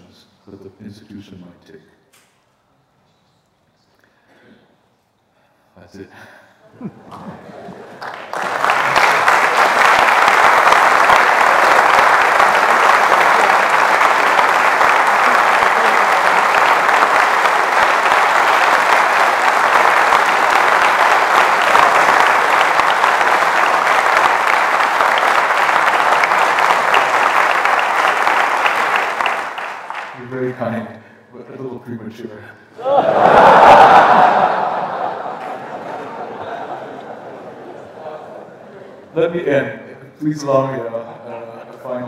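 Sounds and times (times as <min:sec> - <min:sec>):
audience applauding: 0:07.1 - 0:30.6, 0:32.8 - 0:38.4.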